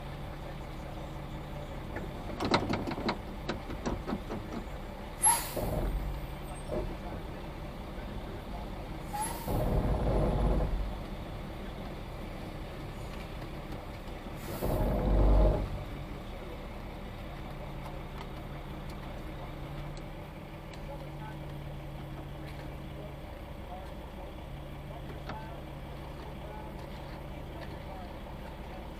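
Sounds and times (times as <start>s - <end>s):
truck diesel engine under load: 0.0s - 28.9s
air brake hiss blasts: 5.2s - 6.1s, 9.1s - 9.7s, 14.4s - 15.1s.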